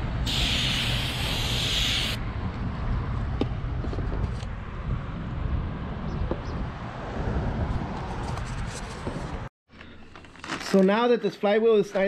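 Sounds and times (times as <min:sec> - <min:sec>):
aerosol spray hiss: 0:00.3 - 0:02.2.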